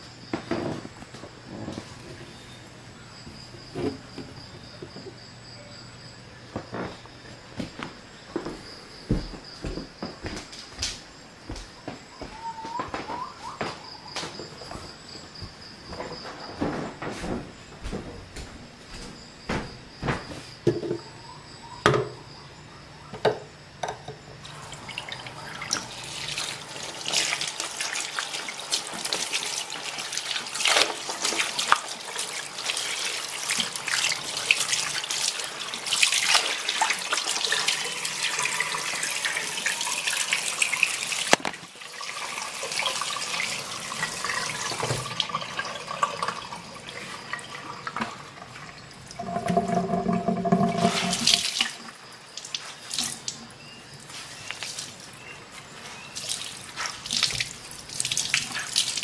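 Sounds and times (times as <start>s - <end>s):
tap water running into sink: 23.8s - 53.4s, 56.2s - 59.0s
water trickling and dripping: 24.4s - 59.0s.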